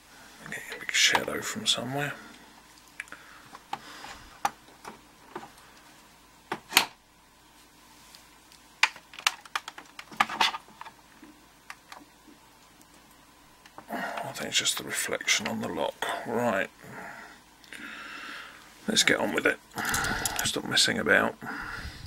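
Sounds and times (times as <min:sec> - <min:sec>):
hard objects clicking and knocking: 0:08.8 - 0:12.1.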